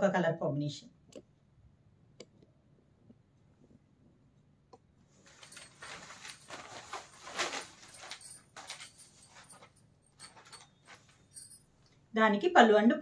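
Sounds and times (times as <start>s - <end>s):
cloth rustling and crackling: 5.1s - 11.7s.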